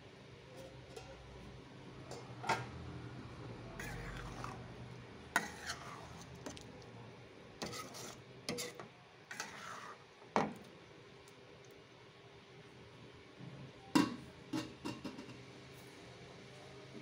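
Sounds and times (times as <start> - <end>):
metal spatula scraping a pan: 3.8 - 4.7, 5.3 - 6.6, 7.6 - 10.1.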